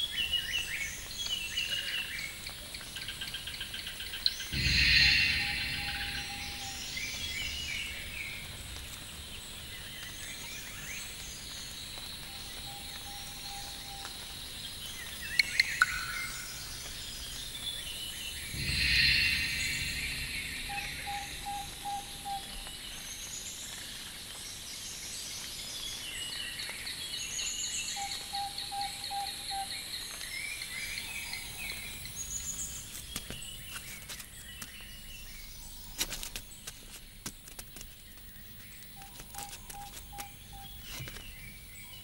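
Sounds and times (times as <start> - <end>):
birds chirping and calling: 3.2 - 10.6, 18.4 - 22.9
rush of noise: 4.5 - 10.0, 18.5 - 22.9
low evenly spaced notes: 4.5 - 10.8, 18.3 - 23.1.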